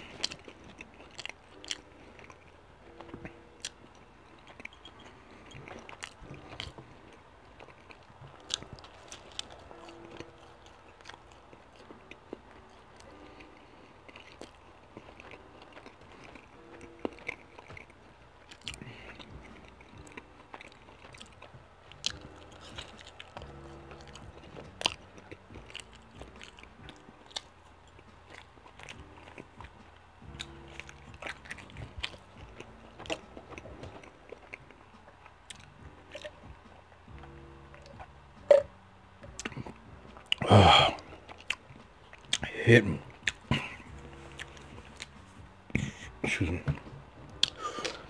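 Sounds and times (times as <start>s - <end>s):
person chewing pizza: 0.0s - 48.0s
sharp mouth clicks: 37.8s - 38.7s.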